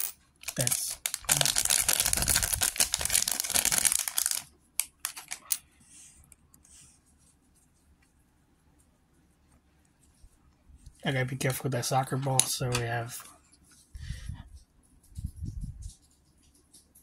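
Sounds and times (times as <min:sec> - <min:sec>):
plastic bag tearing and crinkling: 0:00.4 - 0:05.4.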